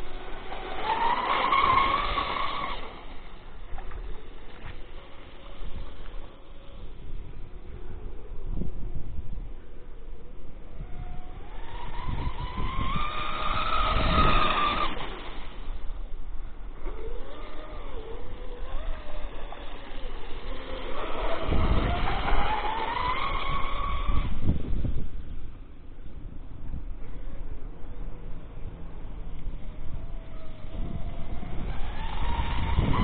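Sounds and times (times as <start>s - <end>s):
electric motor whining: 0.0s - 7.0s, 10.8s - 25.0s, 29.8s - 33.0s.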